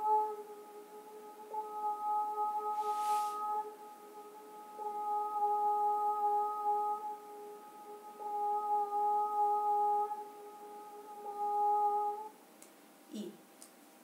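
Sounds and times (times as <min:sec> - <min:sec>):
woman chanting long notes: 0:00.0 - 0:12.3.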